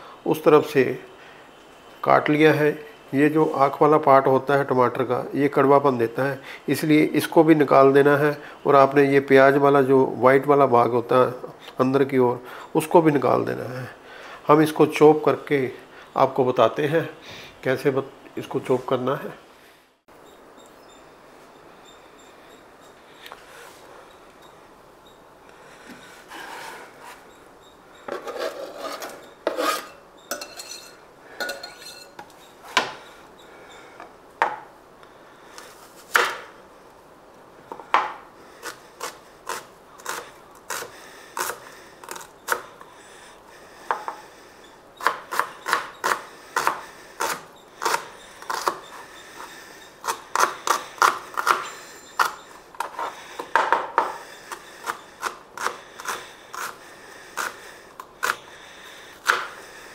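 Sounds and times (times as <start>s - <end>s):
knife chopping on a cutting board: 59.2s - 59.5s.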